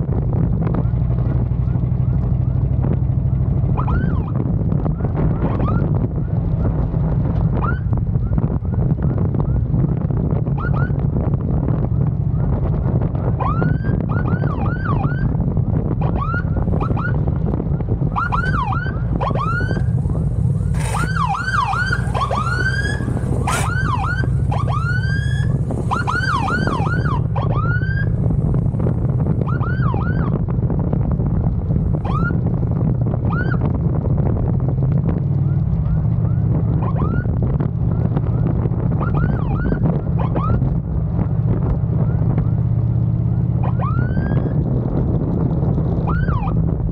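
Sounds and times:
wind and engine rumble: 0.0s - 46.9s
police siren whooping chirps: 18.1s - 28.2s.

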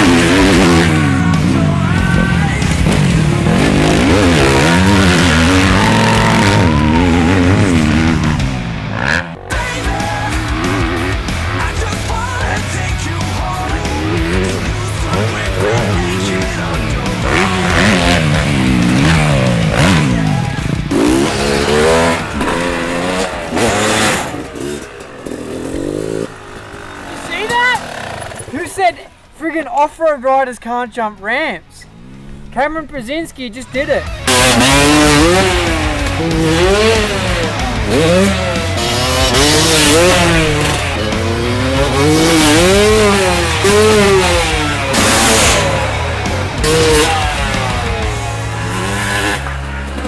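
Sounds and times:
dirt bike engine revving: 0.0s - 29.4s, 31.8s - 50.0s.

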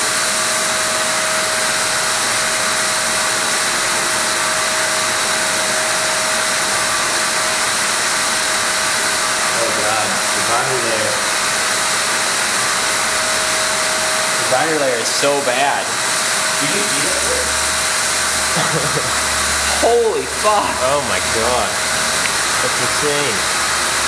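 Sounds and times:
constant whine: 0.0s - 24.0s
rushing hiss of water: 0.1s - 24.0s.

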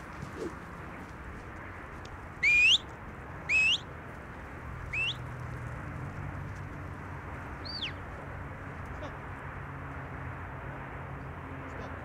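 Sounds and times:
rising whistle commands: 2.4s - 2.8s, 3.5s - 3.8s, 5.0s - 5.2s.

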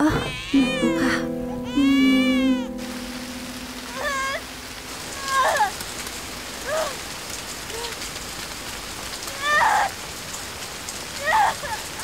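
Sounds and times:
wailing cries: 0.0s - 2.8s, 5.2s - 5.8s
heavy rain falling: 0.3s - 12.0s.

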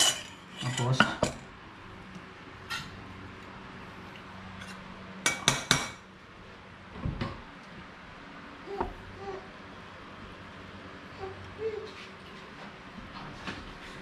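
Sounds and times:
metal spoon clinking on dishes: 0.0s - 1.4s.

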